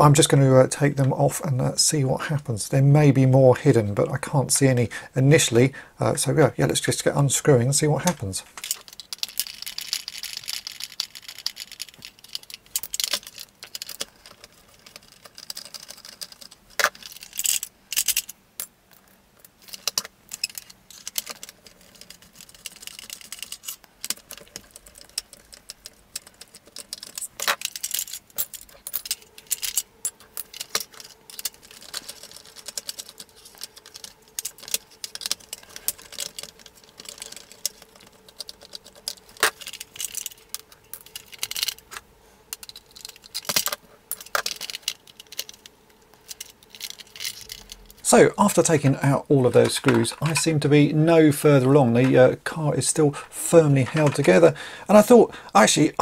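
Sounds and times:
plastic toy rattling: 8.0s - 50.6s, 53.7s - 55.2s.

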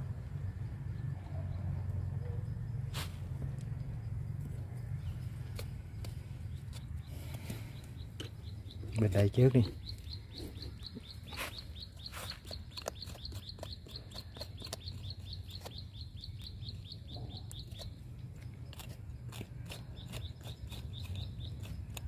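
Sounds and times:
bird chirping: 3.6s - 22.0s
roots snipped and pulled from mulch: 5.4s - 7.6s.

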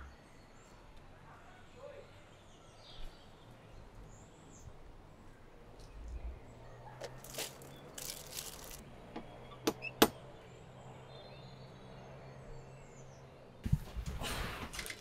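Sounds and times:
soft rustling: 7.0s - 8.8s.

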